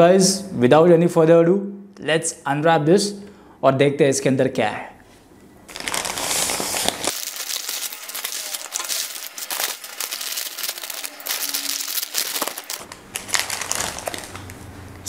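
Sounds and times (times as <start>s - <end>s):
wrappers crinkling and rustling: 5.7s - 14.7s.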